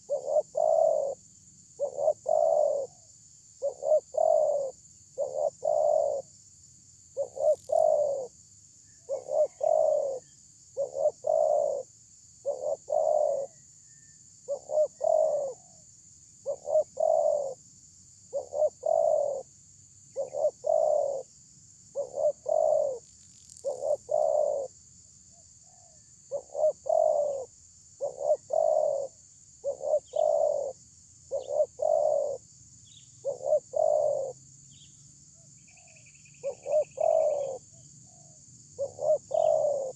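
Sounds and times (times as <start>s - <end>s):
dove cooing: 0.0s - 1.2s, 1.8s - 6.3s, 7.2s - 8.4s, 9.0s - 15.8s, 16.4s - 17.6s, 18.3s - 19.5s, 20.1s - 21.3s, 21.9s - 23.0s, 23.6s - 24.8s, 25.7s - 32.5s, 33.2s - 34.4s, 35.7s - 39.9s.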